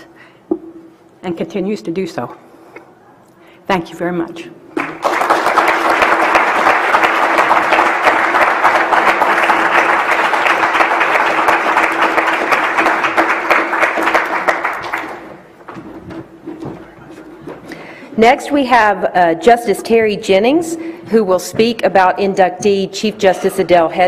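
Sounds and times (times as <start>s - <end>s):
audience applauding: 4.8s - 15.6s.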